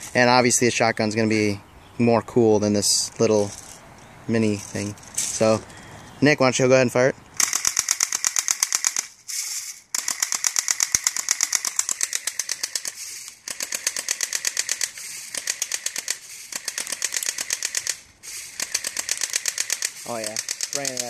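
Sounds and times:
airsoft gun firing full-auto: 7.4s - 9.2s, 9.9s - 21.0s.

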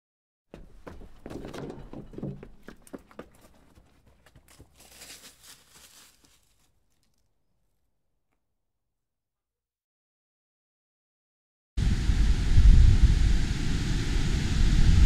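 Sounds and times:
footsteps on dirt trail: 0.5s - 7.2s.

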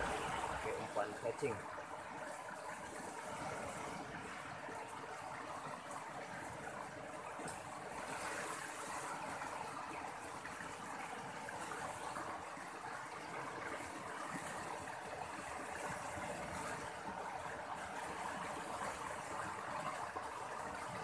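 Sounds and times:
river rushing: 0.0s - 21.0s.

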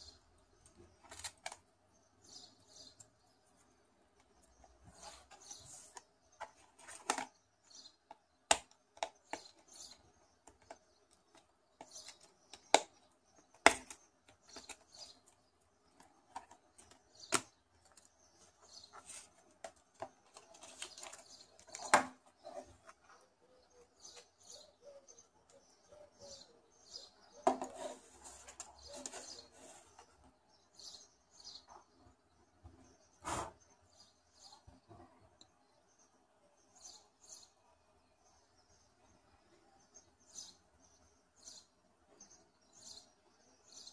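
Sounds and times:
soft rustling and scraping: 4.6s - 7.3s, 17.9s - 23.4s, 27.5s - 30.3s.

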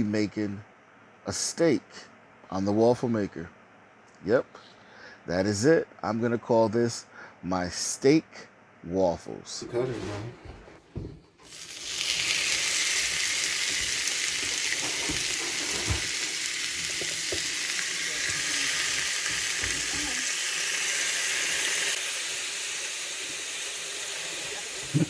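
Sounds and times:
steak sizzling: 11.4s - 25.0s.

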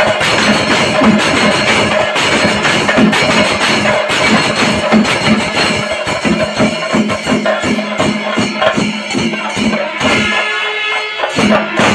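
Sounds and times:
cymbals jingling: 0.0s - 11.9s
drums beaten with sticks: 0.0s - 11.9s.

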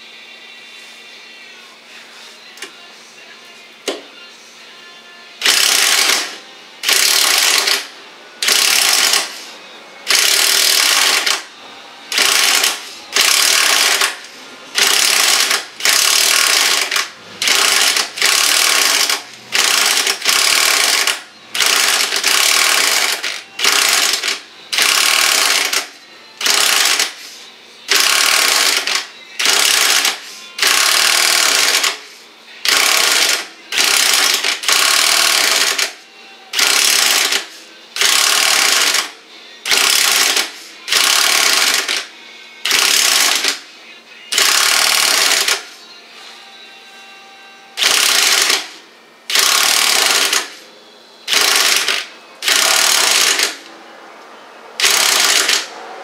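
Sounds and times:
impact wrench hammering: 5.4s - 9.4s, 10.1s - 11.4s, 12.1s - 14.2s, 14.8s - 25.8s, 27.9s - 32.0s, 32.6s - 35.9s, 36.6s - 39.1s, 39.7s - 42.0s, 42.7s - 43.6s, 47.8s - 48.7s, 49.3s - 50.5s, 51.3s - 53.6s, 54.8s - 55.7s.

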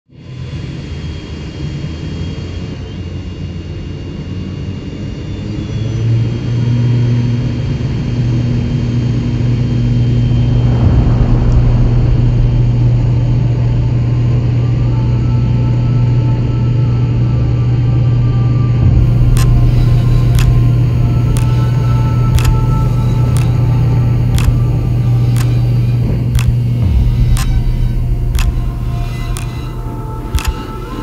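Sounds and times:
jet engine drone: 0.1s - 31.0s
air rushing: 10.1s - 14.8s.

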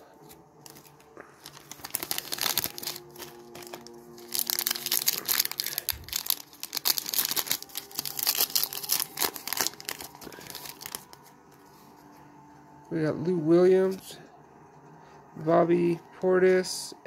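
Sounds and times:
foil wrapper tearing and crinkling: 0.3s - 11.3s.

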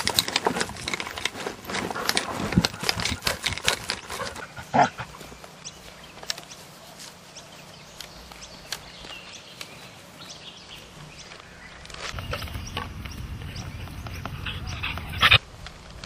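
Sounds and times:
dog scuffling and rustling: 0.0s - 9.0s.

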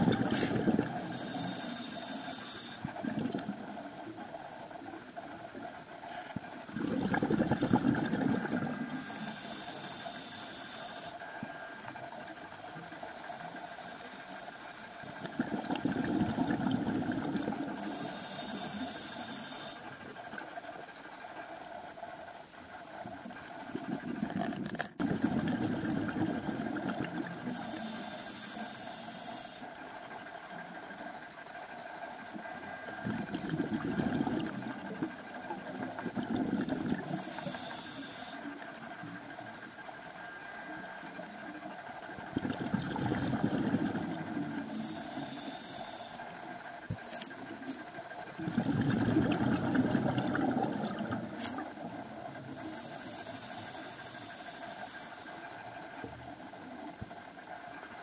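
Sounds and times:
exhaled air bubbling: 0.0s - 11.3s, 15.0s - 20.4s, 23.3s - 29.7s, 32.8s - 39.5s, 41.9s - 58.0s
faint steady hum: 0.0s - 58.0s
regulator inhalation hiss: 0.2s - 3.0s, 8.8s - 11.7s, 17.7s - 20.2s, 27.4s - 29.8s, 37.0s - 38.6s, 44.6s - 46.4s, 52.4s - 55.8s.

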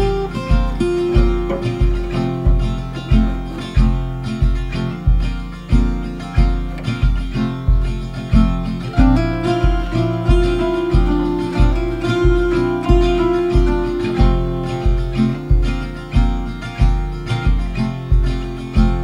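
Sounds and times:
acoustic guitar picking: 0.0s - 19.0s.

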